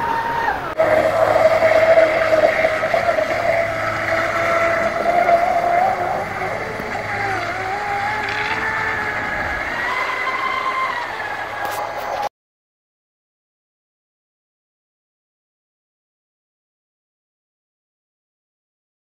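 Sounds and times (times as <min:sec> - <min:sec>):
electric motor whining: 0:00.8 - 0:12.3.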